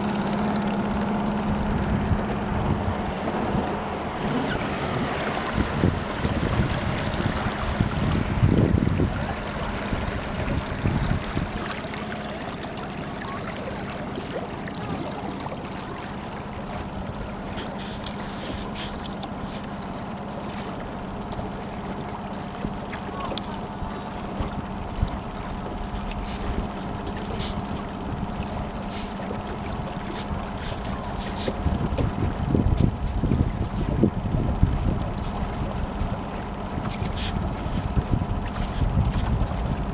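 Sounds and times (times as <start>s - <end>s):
water lapping against boat hull: 0.0s - 39.9s
wind on microphone: 1.4s - 12.4s, 29.7s - 39.9s.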